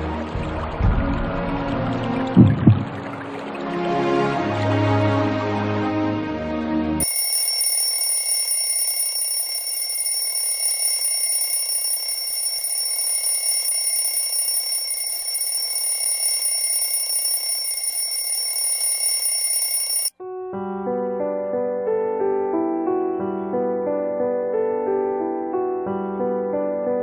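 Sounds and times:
background music: 0:00.0 - 0:07.0
mobile phone ringing: 0:07.0 - 0:20.1.

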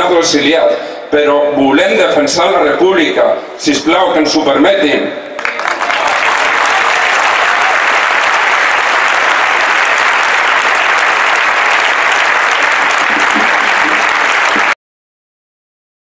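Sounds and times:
crowd applauding: 0:05.4 - 0:14.8.

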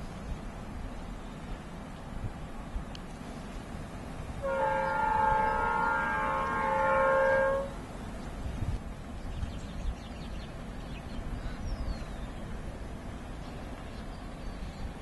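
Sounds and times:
locomotive horn: 0:04.4 - 0:07.9.

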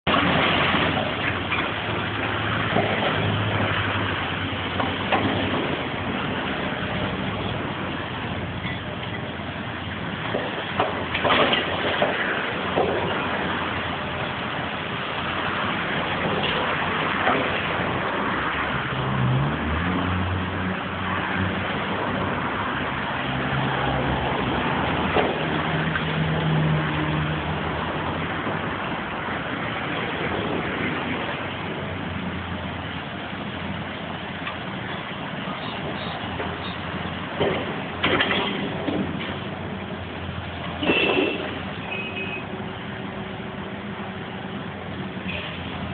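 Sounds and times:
falling debris knocks: 0:10.2 - 0:13.2.

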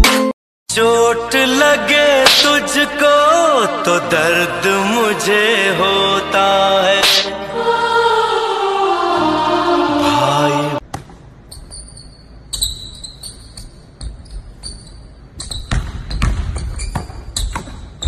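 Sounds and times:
chanted song: 0:00.8 - 0:10.8
sneaker squeaks: 0:11.5 - 0:18.0
basketball thumping on gym floor: 0:15.6 - 0:18.0.

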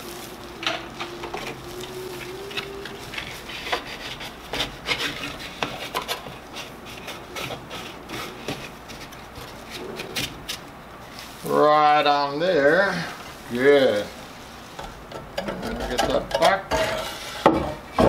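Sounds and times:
rubbing and scraping: 0:00.0 - 0:11.4
faint hum: 0:00.0 - 0:15.8.

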